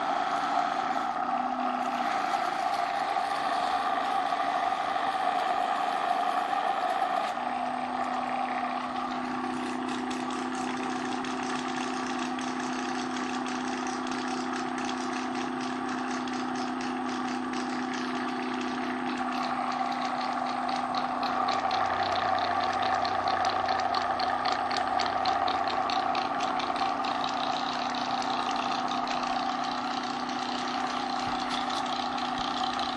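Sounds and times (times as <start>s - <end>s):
electric pump motor humming: 0.0s - 32.9s.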